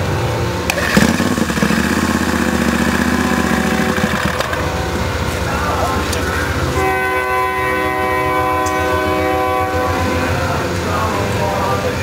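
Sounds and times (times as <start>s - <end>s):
starter whirring hum: 0.0s - 6.8s
engine noise: 0.0s - 12.0s.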